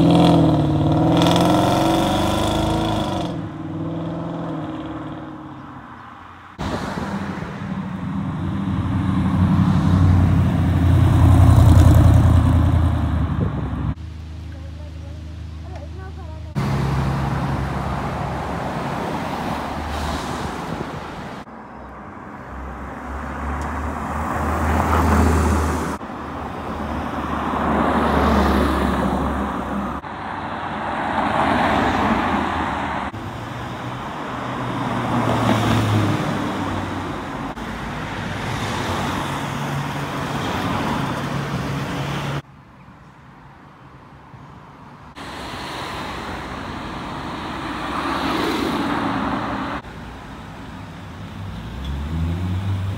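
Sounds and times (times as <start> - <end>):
car engine accelerating away: 0.0 - 5.0
cars driving past: 0.0 - 14.6, 16.5 - 42.5, 44.7 - 52.9.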